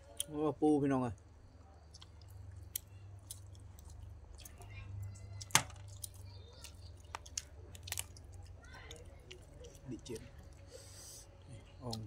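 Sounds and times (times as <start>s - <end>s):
eating noises: 1.2s - 12.0s
crab shells cracking: 5.3s - 10.6s.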